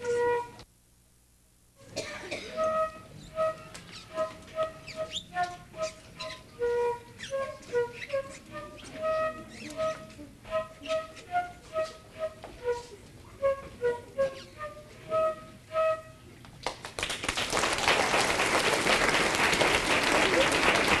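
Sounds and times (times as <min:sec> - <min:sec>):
flute solo: 0:00.0 - 0:00.6, 0:02.4 - 0:16.3
audience applause: 0:16.6 - 0:21.0.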